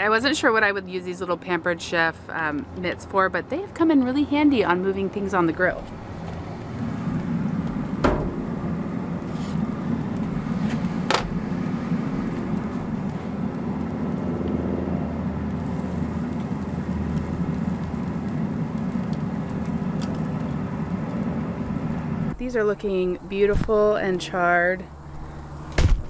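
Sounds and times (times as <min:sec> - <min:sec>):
steady low rumble: 0:04.4 - 0:25.7
skewers clicking on metal grill: 0:15.3 - 0:22.0.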